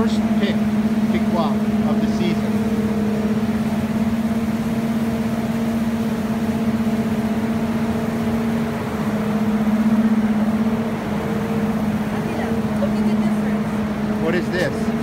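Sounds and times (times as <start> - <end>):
machinery humming: 0.0 - 15.0.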